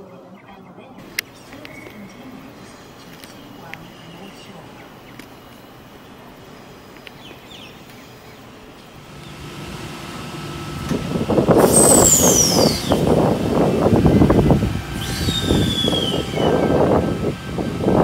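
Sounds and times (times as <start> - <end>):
train rumble: 1.0 - 18.0
wheels clattering on rails: 1.0 - 18.0
high squeal: 11.0 - 17.7.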